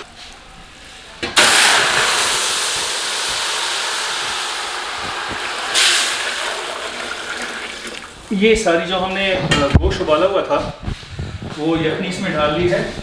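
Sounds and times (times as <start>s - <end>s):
stock sizzling in hot oil: 1.4s - 8.4s.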